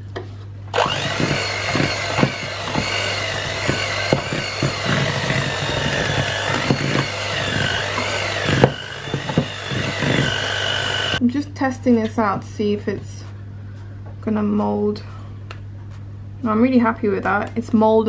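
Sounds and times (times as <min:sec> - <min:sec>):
electric hand mixer whining: 0:00.7 - 0:11.2.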